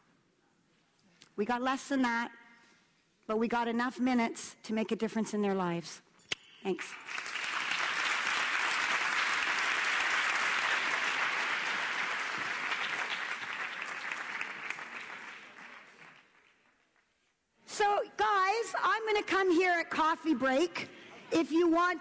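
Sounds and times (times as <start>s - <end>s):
audience applauding: 6.8s - 16.9s.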